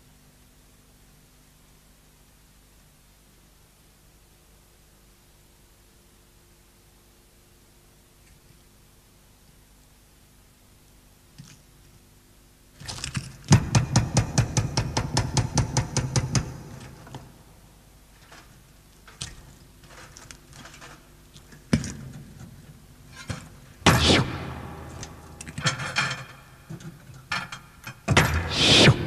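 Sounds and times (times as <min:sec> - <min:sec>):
fast run of sharp strikes: 0:23.8 - 0:25.3, 0:28.1 - 0:29.0
loud crashes: 0:23.8 - 0:26.1.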